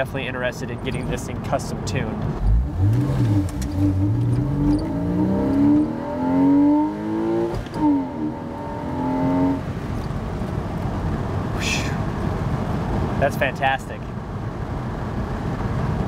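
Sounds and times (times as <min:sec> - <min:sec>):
car engine accelerating: 0:02.2 - 0:10.2.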